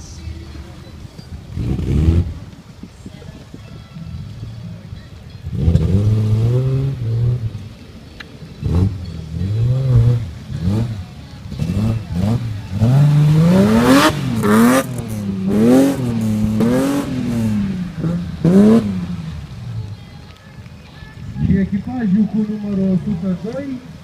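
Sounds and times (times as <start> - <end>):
truck engine revving: 1.4 - 2.6, 5.4 - 7.8, 8.5 - 20.0.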